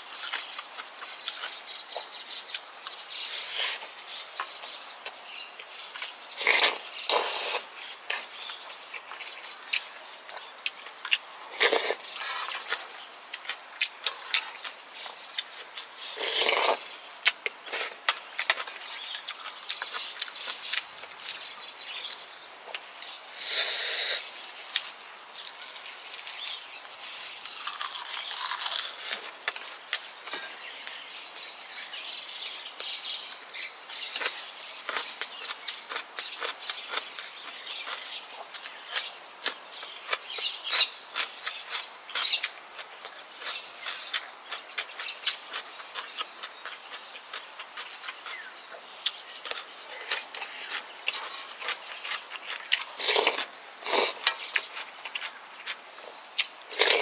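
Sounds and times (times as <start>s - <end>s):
person chewing food: 6.0s - 30.6s, 34.2s - 57.0s
noisy slurps: 50.0s - 54.3s, 56.7s - 57.0s.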